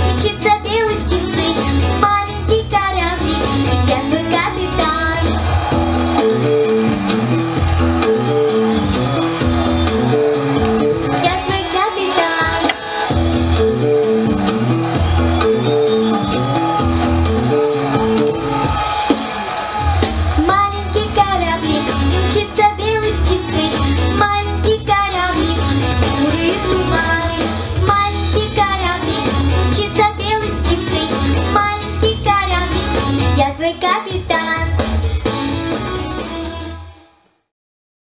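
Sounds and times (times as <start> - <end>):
girl singing into microphone: 0.0 - 5.4, 11.2 - 12.8, 20.4 - 34.8
backing track with bass line: 0.0 - 11.8, 12.4 - 36.8.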